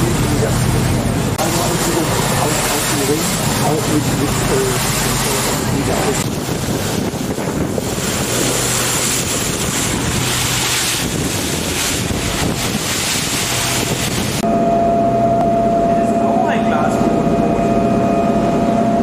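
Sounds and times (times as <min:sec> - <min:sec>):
wind buffeting microphone: 0:00.0 - 0:15.9
low engine hum: 0:00.0 - 0:19.0
water rushing along hull: 0:00.0 - 0:19.0.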